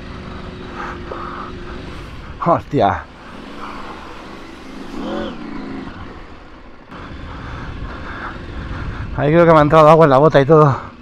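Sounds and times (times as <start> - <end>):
motorcycle engine revving: 0.0 - 11.0
wind noise on microphone: 7.1 - 9.3.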